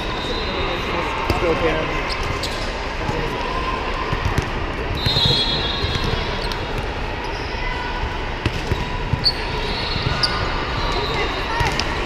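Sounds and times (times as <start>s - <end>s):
referee's whistle: 0.0s - 0.8s, 5.0s - 6.6s, 9.2s - 11.7s
volleyballs struck and bouncing: 4.1s - 7.0s, 8.4s - 9.4s
shoe squeak: 9.2s - 11.3s.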